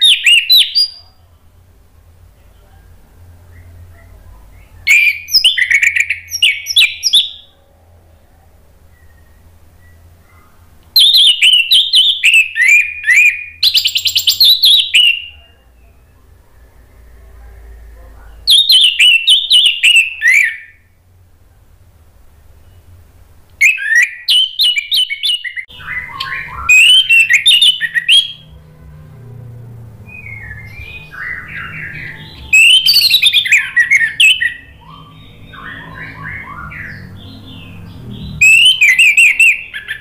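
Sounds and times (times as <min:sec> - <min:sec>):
thrush singing: 0:25.6 - 0:40.0.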